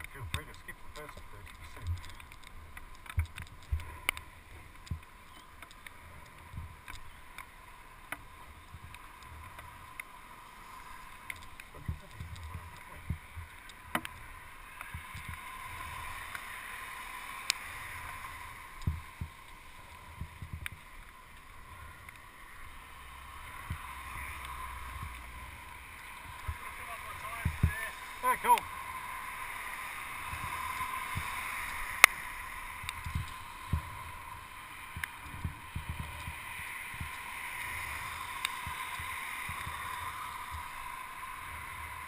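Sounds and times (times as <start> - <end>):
bike clicks and knocks over bumps: 0.0 - 10.2, 11.0 - 16.6
bike tyre and air rush: 0.0 - 42.0.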